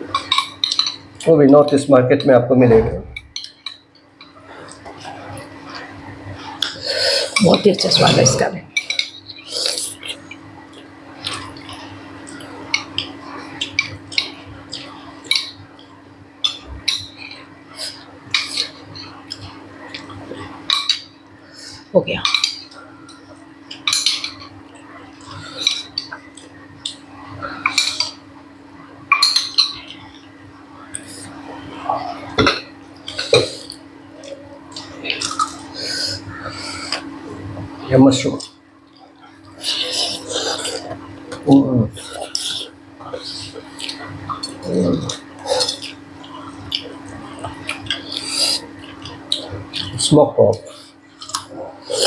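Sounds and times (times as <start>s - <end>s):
steady low hum: 0.0s - 52.0s
dishes clinking: 0.1s - 1.2s, 6.6s - 9.4s, 22.2s - 24.6s, 25.2s - 27.0s, 29.1s - 30.2s
person chewing: 3.4s - 28.2s, 30.9s - 37.7s, 38.4s - 52.0s.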